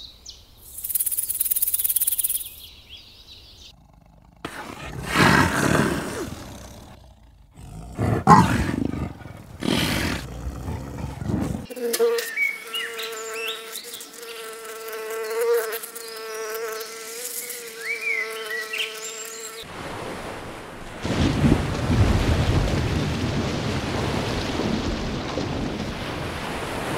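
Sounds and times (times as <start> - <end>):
wind: 0.0 - 26.9
bee buzzing: 3.8 - 19.7
ocean waves: 19.7 - 26.9.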